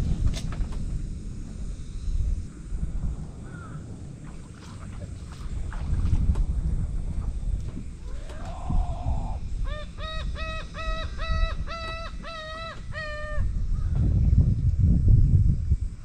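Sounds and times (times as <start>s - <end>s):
wind rumble on microphone: 0.0s - 16.0s
bird calling harsh notes: 9.2s - 13.6s.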